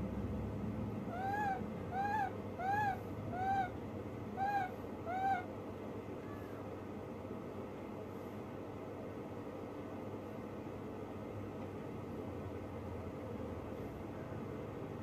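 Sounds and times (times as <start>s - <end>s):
baby monkey coo calls: 1.1s - 3.8s, 4.4s - 5.5s.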